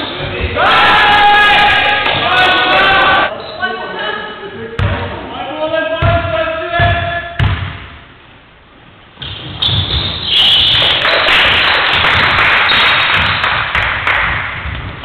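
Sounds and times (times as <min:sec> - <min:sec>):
sports hall noise: 0:00.0 - 0:15.0
basketball thudding: 0:06.0 - 0:08.0.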